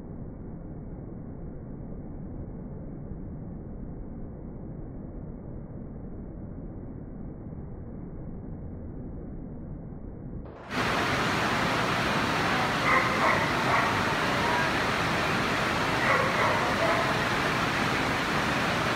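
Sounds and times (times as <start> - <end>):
indoor hall crowd hubbub: 11.8 - 18.9
dog barking: 12.4 - 17.7.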